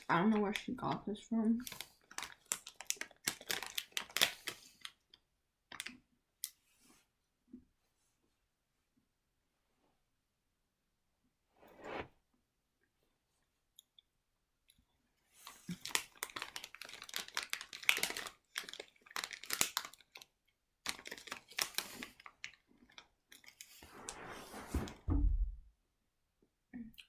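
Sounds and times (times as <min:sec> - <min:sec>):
plastic wrapper crinkling: 0:01.5 - 0:05.0, 0:15.4 - 0:23.8
cookie crunching being chewed: 0:01.6 - 0:06.0, 0:15.6 - 0:23.7
soft low rustle: 0:11.5 - 0:12.2, 0:23.8 - 0:25.3.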